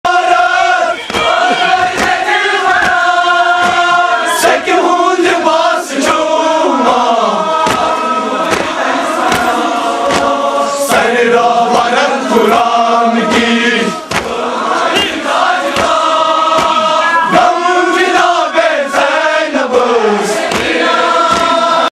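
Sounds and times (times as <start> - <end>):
crowd of men chanting: 0.0 - 21.9
hands slapping chests: 1.0 - 4.0, 7.6 - 10.4, 13.3 - 14.4, 15.0 - 17.0, 20.4 - 21.8.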